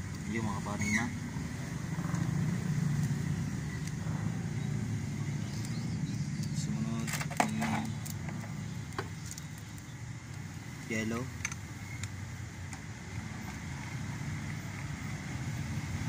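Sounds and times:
steady low rumble: 0.0 - 7.1
small metallic clicks: 5.5 - 10.4.

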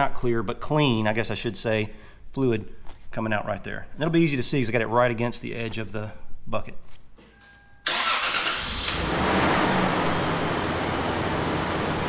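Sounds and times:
car engine starting and idling: 7.8 - 12.0.

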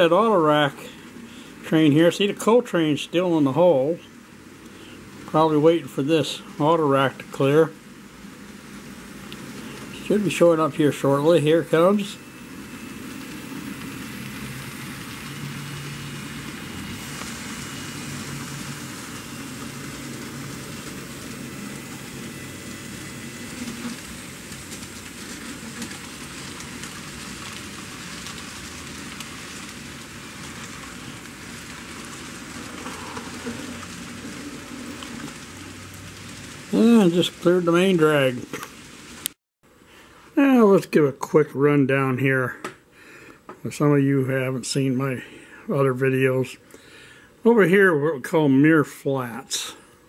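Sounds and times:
model train whirring on rails: 0.0 - 39.4.

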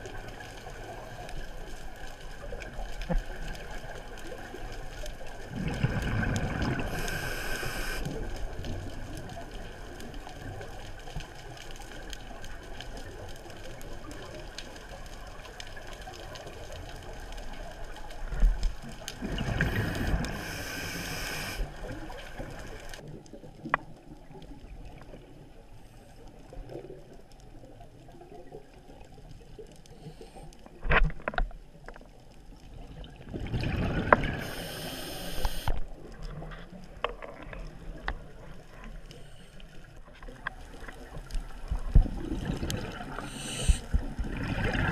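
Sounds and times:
bubbles gurgling underwater: 2.4 - 10.8, 16.4 - 25.3, 32.7 - 34.9, 40.7 - 44.9
diver breathing through regulator: 6.8 - 8.1, 19.6 - 21.8, 34.4 - 35.8, 43.1 - 44.0.

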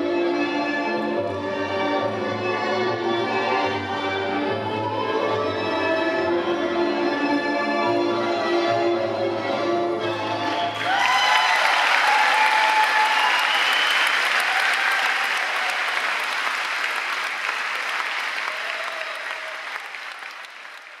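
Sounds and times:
music: 0.0 - 11.2
audience applause: 10.6 - 21.0
cheers and whoops: 10.7 - 16.3, 18.4 - 20.1.

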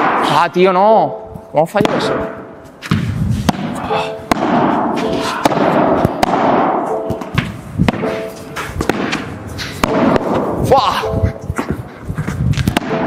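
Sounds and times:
ball pops off rackets and walls: 2.8 - 10.6, 12.6 - 13.0.

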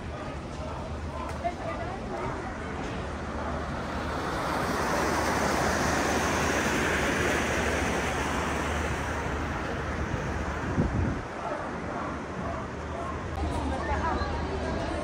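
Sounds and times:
wind and sea rushing: 3.5 - 13.4.

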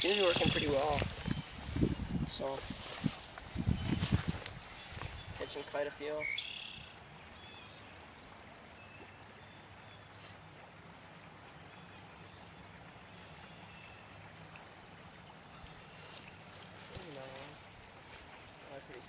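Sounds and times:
stream water flowing: 0.0 - 3.7, 4.3 - 19.0
short bird chirps: 6.2 - 6.9.

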